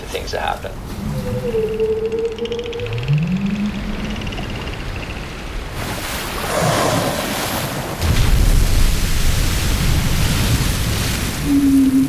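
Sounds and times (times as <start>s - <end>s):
waves rushing: 0.0s - 12.0s
wind: 0.0s - 12.0s
low held tone: 1.0s - 4.6s.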